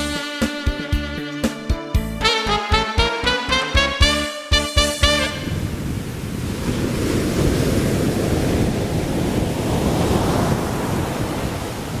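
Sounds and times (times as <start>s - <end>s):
small waves washing: 5.0s - 12.0s
wind rumble on microphone: 5.0s - 12.0s.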